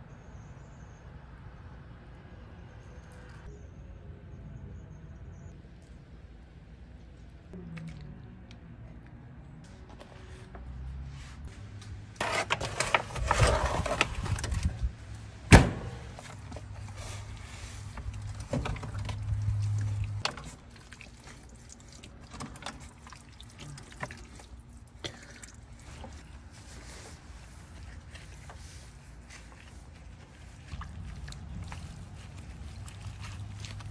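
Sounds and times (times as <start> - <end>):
foil pan rustling and scraping: 12.2 - 14.8.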